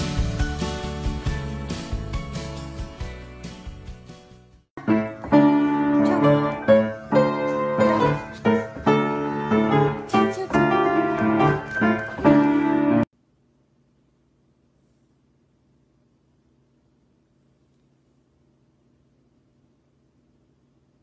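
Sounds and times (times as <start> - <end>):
other music: 0.0 - 4.5
piano melody over chords: 0.0 - 13.1.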